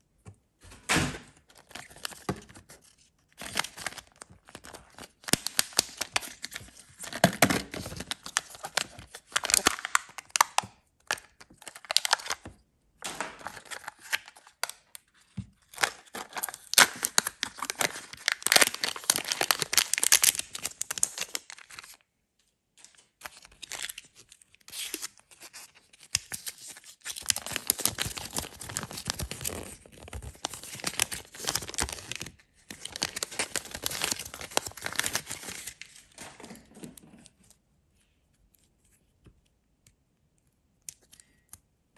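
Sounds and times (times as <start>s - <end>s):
plastic wrapper tearing: 1.4s - 12.5s, 13.3s - 15.1s, 15.7s - 22.0s, 22.8s - 36.5s
paper leaflet crinkling: 26.8s - 37.1s.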